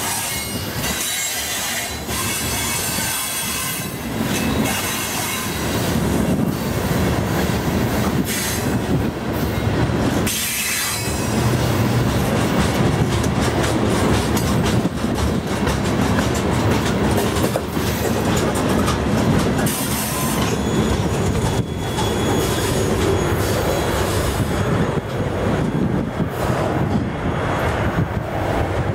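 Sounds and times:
train wheels clacking over rails: 0.0 - 28.9
high wheel squeal: 19.6 - 24.6.

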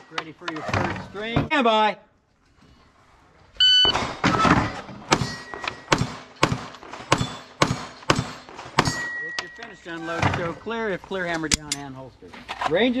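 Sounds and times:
shot timer beep: 3.6 - 4.0
steel targets ringing: 5.2 - 6.4, 7.1 - 9.8.

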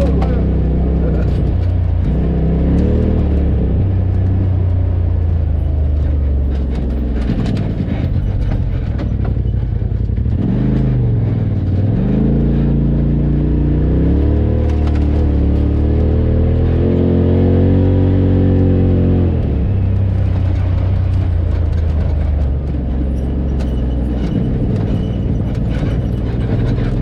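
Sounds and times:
knocks and rattles: 0.0 - 13.3, 19.4 - 27.0
off-road vehicle engine under load: 0.0 - 27.0.

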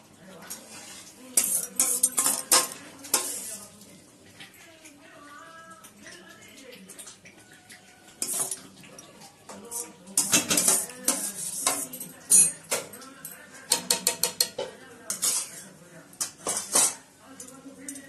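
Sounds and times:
spoon clinking and scraping pan: 0.5 - 3.6, 8.1 - 18.0.

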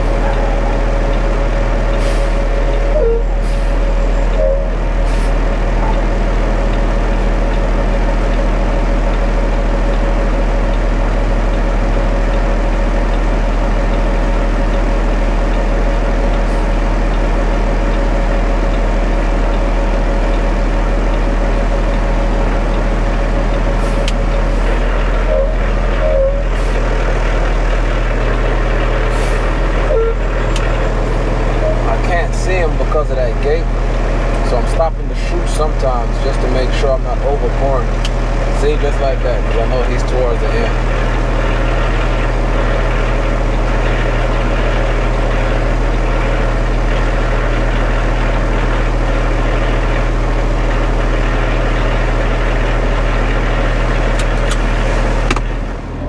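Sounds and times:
steady tone: 0.0 - 6.8, 21.0 - 37.7
diesel engine running: 0.0 - 56.0.

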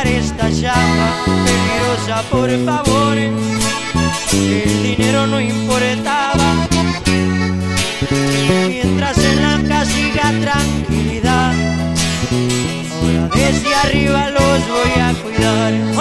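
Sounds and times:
band playing acoustic guitars: 0.0 - 16.0
bass line: 0.0 - 16.0.

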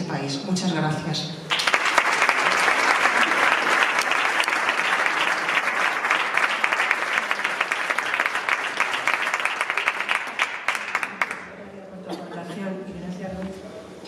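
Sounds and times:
audience applauding: 1.5 - 11.5.

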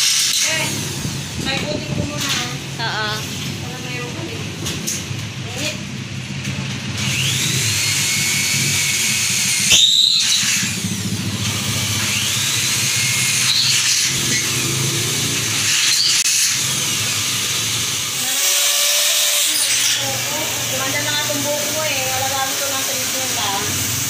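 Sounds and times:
electric drill drilling into metal: 0.0 - 1.3, 6.8 - 24.0.

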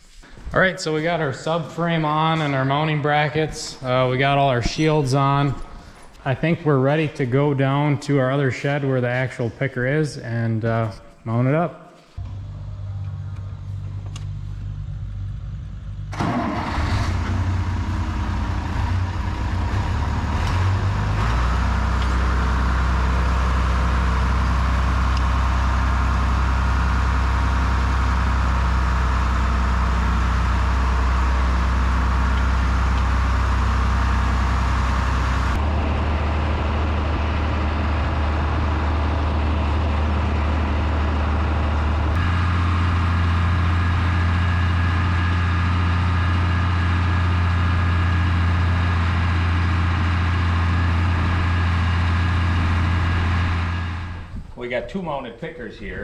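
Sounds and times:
tractor engine running: 12.2 - 54.8.

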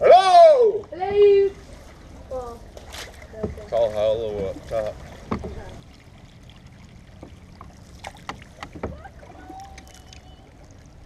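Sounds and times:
paddles knocking against hull: 2.7 - 5.8, 7.1 - 10.3.

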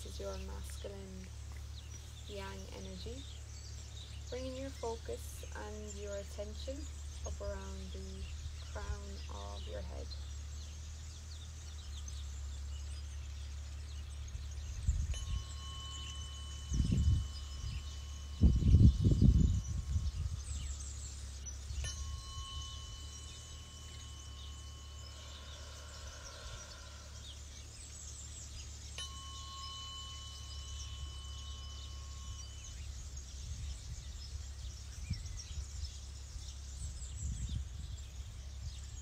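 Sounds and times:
tuning fork ringing: 14.6 - 36.1.

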